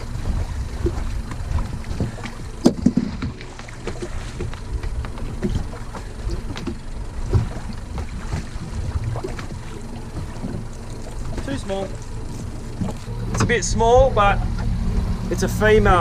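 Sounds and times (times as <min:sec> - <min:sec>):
water lapping against boat hull: 0:00.0 - 0:16.0.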